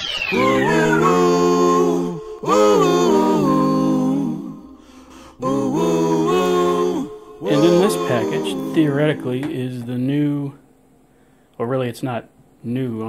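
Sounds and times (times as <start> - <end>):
falling whistle-like sweep: 0.0 - 2.6
voices singing a cappella chords: 0.2 - 10.7.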